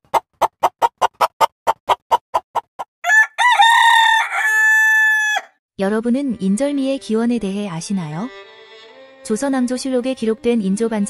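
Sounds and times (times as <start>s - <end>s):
rooster crowing: 3.0s - 5.6s.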